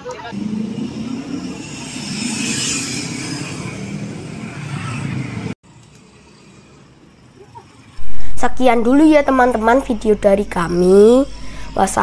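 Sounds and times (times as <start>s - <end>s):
motorbikes and cars passing: 0.0s - 12.0s
vehicle engines running: 0.0s - 12.0s.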